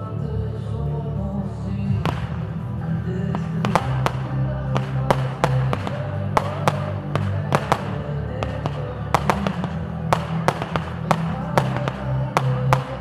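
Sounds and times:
music with low bass: 0.0s - 13.0s
fireworks bangs: 1.9s - 2.6s, 3.3s - 13.0s.

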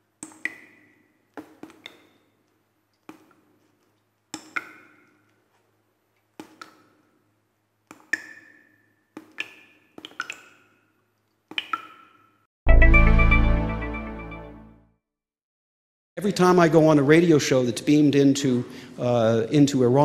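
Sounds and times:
musical hit with deep bass: 12.7s - 14.7s.

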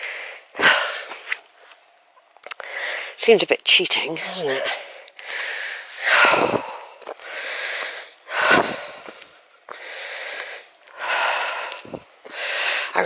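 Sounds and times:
person breathing hard: 0.0s - 1.4s, 2.6s - 3.2s, 4.6s - 13.0s.

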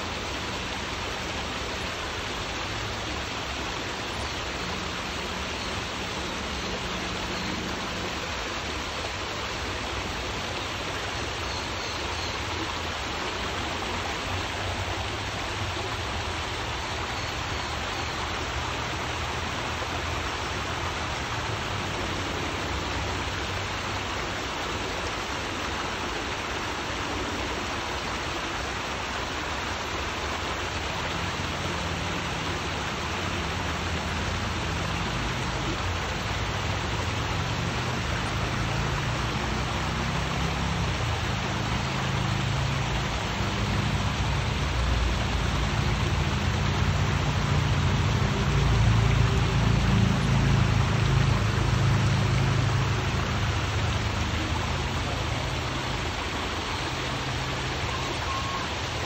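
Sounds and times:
waterfall splashing over rocks: 0.0s - 59.0s.

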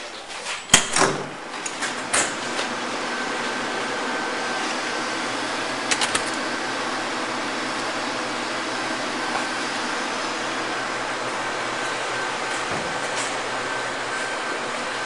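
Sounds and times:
ventilation rushing hiss: 0.0s - 15.0s
quick clicks: 5.9s - 6.4s.

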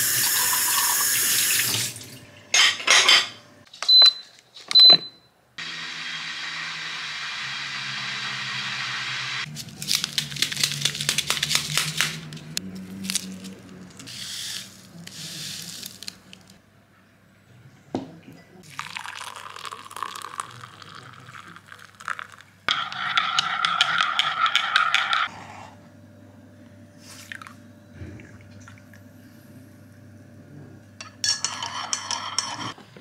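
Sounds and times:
plastic sachet crinkling: 9.5s - 16.6s
hot water pouring into mug: 18.6s - 22.5s
coffee granules trickling into mug: 18.7s - 22.4s.

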